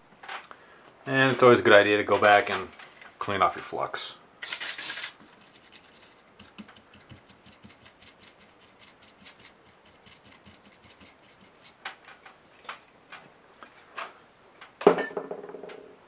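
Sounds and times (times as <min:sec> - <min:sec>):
brush scrubbing circuit board: 0:04.4 - 0:11.9.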